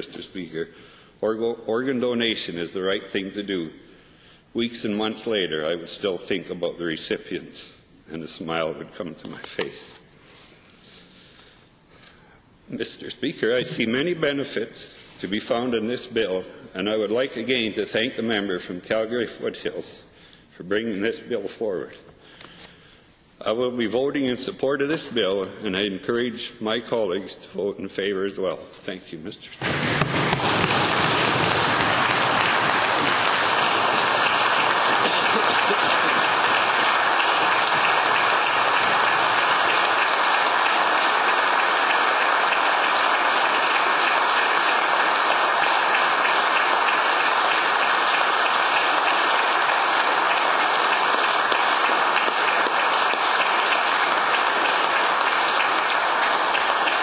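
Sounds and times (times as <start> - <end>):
crowd applause: 29.6 - 57.0.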